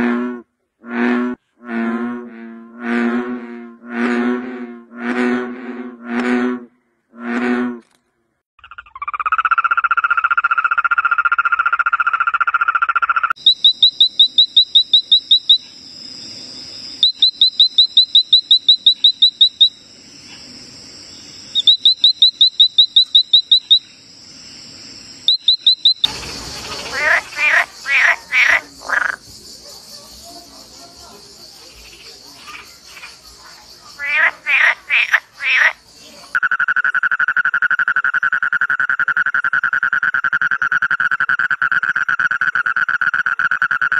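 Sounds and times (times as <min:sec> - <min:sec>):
tree frog clicking notes: 0:08.6 - 0:15.7, 0:17.0 - 0:19.8, 0:21.5 - 0:24.0, 0:25.3 - 0:29.5
frog buzzing trill: 0:08.6 - 0:20.3, 0:21.1 - 0:29.5.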